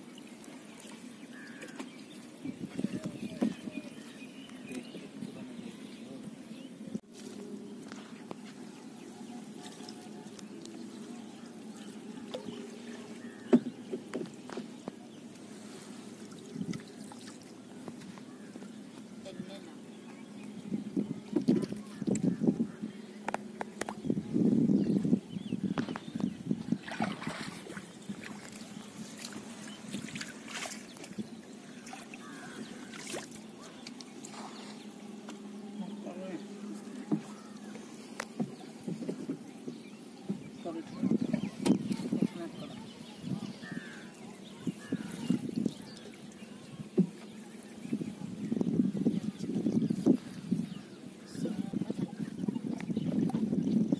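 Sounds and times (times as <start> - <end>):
water splashes: 0.0 - 6.2, 9.2 - 24.2, 25.7 - 53.9
water trickling and dripping: 45.0 - 48.7.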